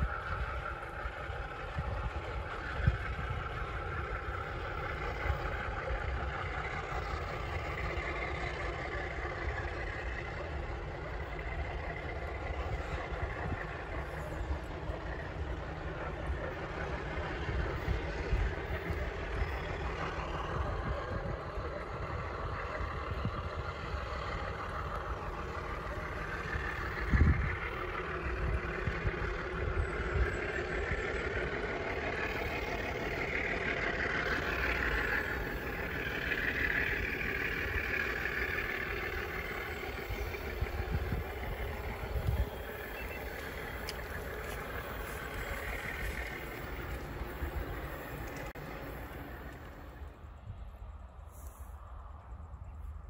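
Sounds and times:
freight train rumbling: 0.0 - 53.0
hissing: 23.7 - 50.0.

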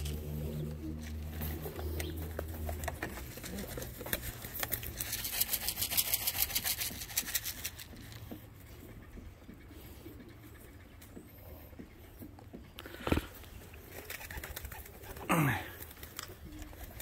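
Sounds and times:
low engine-like hum: 0.0 - 5.1
dry crackling and rustling: 0.0 - 8.8, 12.8 - 17.0.

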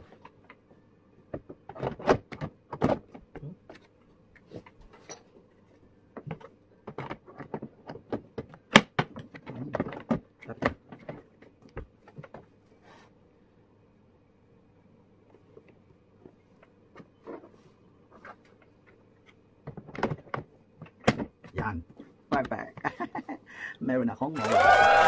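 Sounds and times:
hard plastic knocking and clicking: 1.3 - 3.8, 6.1 - 12.4, 19.6 - 21.7.

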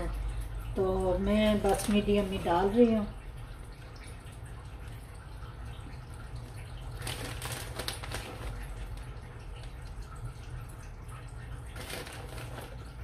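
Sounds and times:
plastic packet crackling: 6.9 - 9.8, 11.7 - 13.0.

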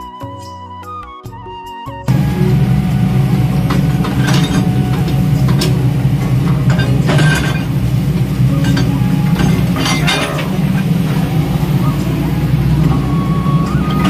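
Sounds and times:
metallic clanks of bucket and stones: 2.1 - 11.2
excavator diesel engine running: 2.1 - 14.0.

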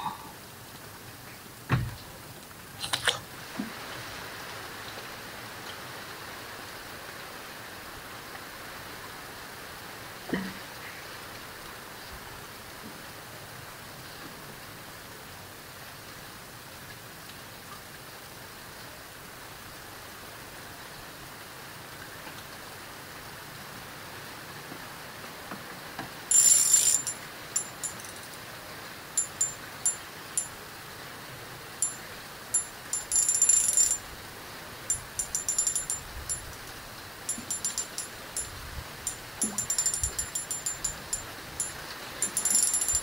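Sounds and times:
fishing reel clicking: 26.3 - 28.3, 29.2 - 30.5, 31.8 - 32.0, 32.6 - 34.0, 34.9 - 36.5, 37.3 - 43.0.

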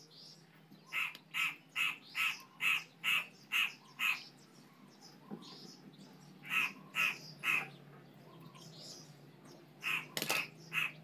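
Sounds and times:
crow cawing: 0.9 - 4.2, 6.4 - 7.8, 9.8 - 11.0.

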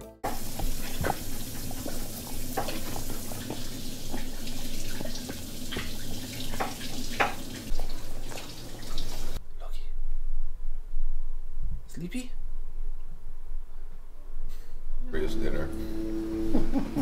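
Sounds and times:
low hum: 9.4 - 17.0.

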